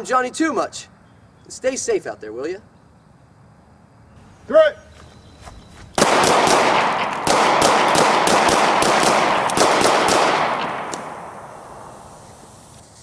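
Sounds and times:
rapid handgun shots: 0:06.0 - 0:12.1
gunshot echo: 0:06.0 - 0:12.4.

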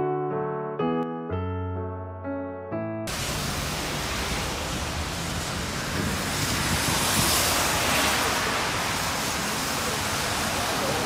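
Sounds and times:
wind on microphone: 0:04.4 - 0:09.3.

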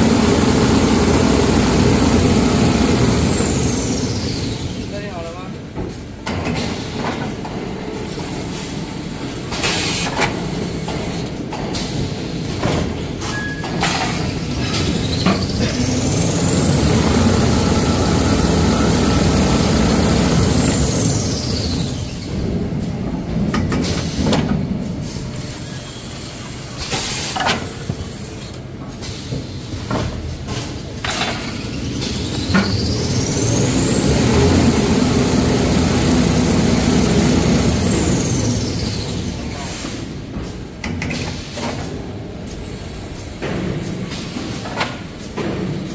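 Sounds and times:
high machine whine: 0:00.0 - 0:04.8, 0:15.2 - 0:22.1, 0:32.2 - 0:39.5
steady machine rumble: 0:00.0 - 0:05.3, 0:15.5 - 0:22.7, 0:31.7 - 0:39.5
machinery clanks and knocks: 0:00.0 - 0:25.0, 0:28.8 - 0:42.2, 0:43.1 - 0:45.9.

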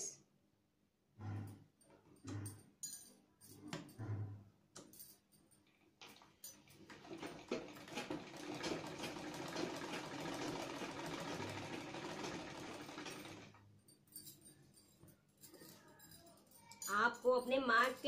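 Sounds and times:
sewing machine needle clatter: 0:06.1 - 0:13.6.

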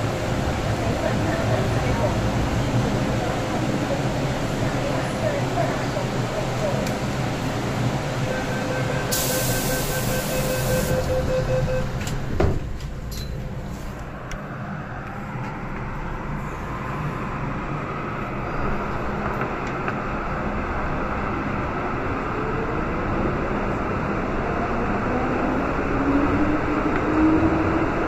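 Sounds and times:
air hiss: 0:09.1 - 0:10.9.

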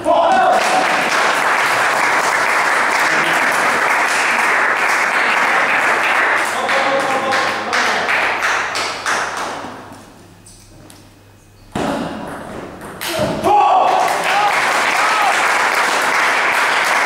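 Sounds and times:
spectators applauding: 0:00.3 - 0:09.6, 0:13.8 - 0:17.0.

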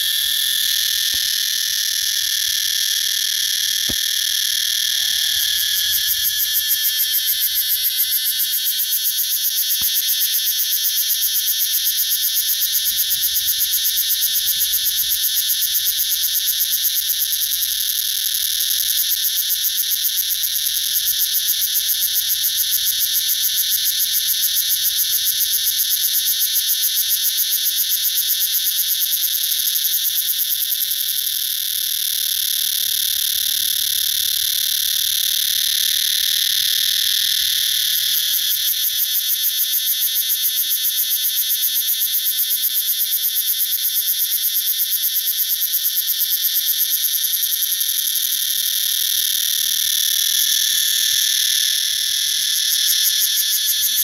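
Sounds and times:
cicada buzzing: 0:00.0 - 0:54.0.

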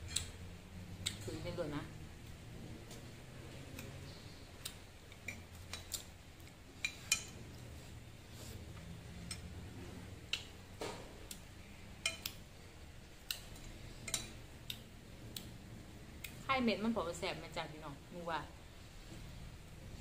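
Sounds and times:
metal spoon clinking in ceramic bowl: 0:12.0 - 0:12.3, 0:14.0 - 0:14.4.

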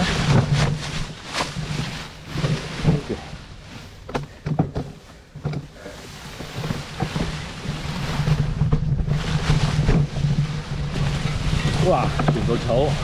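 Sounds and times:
wind on microphone: 0:06.2 - 0:13.0.

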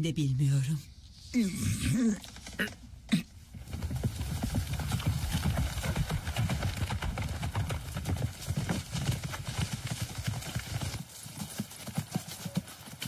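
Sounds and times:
horse hooves clip-clopping: 0:03.5 - 0:13.0.

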